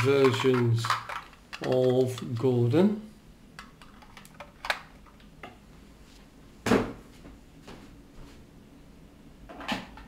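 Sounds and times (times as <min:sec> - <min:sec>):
plastic handling clicks: 0:00.2 - 0:02.5.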